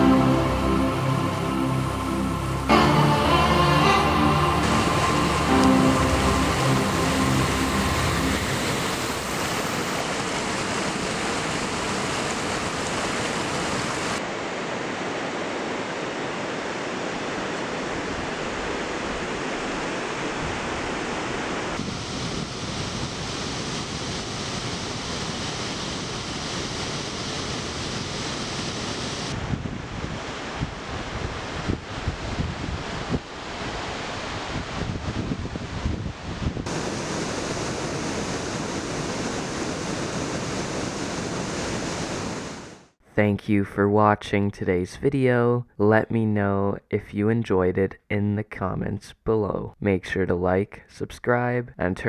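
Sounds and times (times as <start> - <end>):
whitewater rushing over rocks: 0.0 - 21.9, 36.7 - 42.9.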